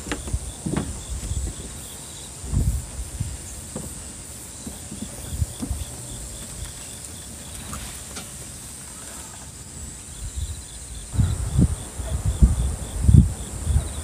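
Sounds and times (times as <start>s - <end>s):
footsteps thumping on platform: 0.0s - 1.8s
insect chirp: 0.0s - 14.0s
insects calling: 0.0s - 14.0s.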